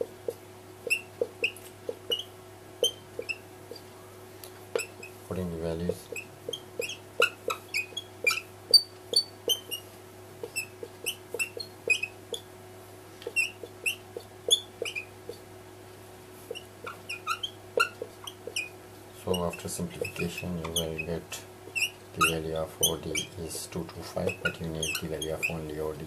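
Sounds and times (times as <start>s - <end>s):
marker pen squeaking: 0.0s - 3.9s, 4.7s - 5.2s, 5.8s - 12.5s, 13.2s - 15.4s, 16.5s - 26.0s
faint steady hum: 0.0s - 26.0s.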